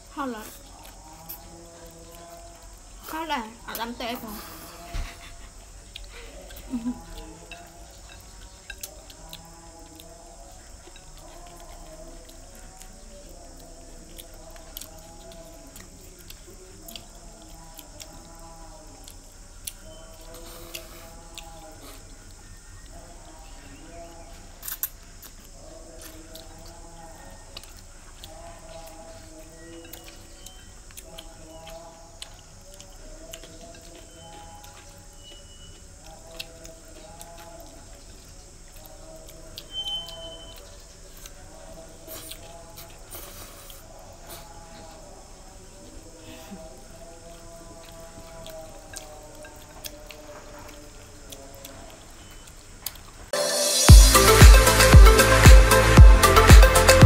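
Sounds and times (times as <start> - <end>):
chewing and slurping noodles: 0.5 - 3.0
chopsticks clicking against bowls: 5.9 - 18.4, 27.6 - 38.2
chopsticks clicking on bowls: 6.0 - 10.1.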